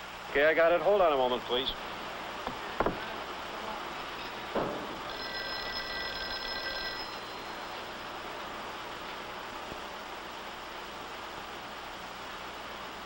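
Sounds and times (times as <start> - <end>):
old film soundtrack hiss: 0.0 - 13.0
thump: 2.4 - 3.1, 4.5 - 5.1
telephone bell ringing: 5.0 - 7.9.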